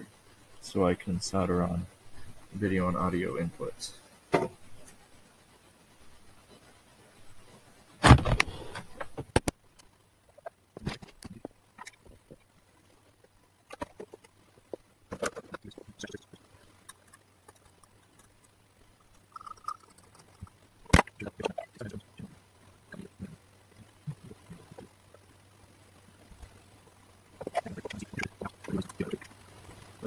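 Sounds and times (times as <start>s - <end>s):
faint low hum: 0.0s - 30.0s
clicks and knocks handling electronics: 8.0s - 9.6s, 15.1s - 15.7s.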